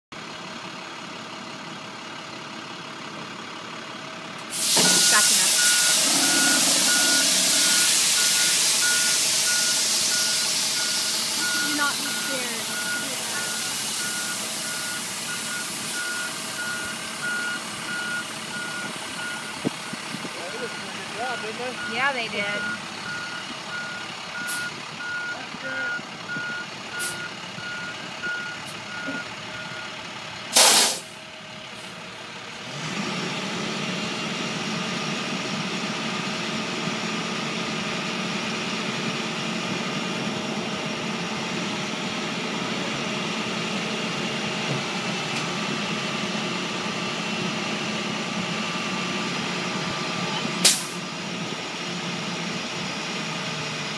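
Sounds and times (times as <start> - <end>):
truck engine running: 0.1 - 53.9
loud burst of noise: 4.5 - 12.1, 30.5 - 31.2
reversing alarm beeping: 4.8 - 30.0.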